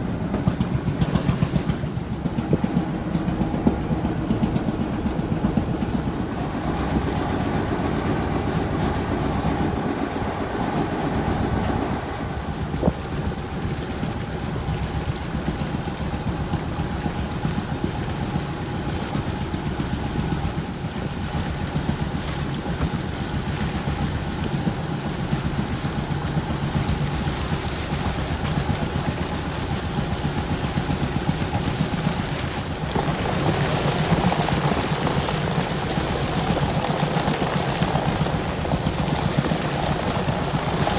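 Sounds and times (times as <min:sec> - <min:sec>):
boat engine running: 0:00.0 - 0:40.9
water noise: 0:00.0 - 0:40.9
water splashing: 0:11.9 - 0:40.9.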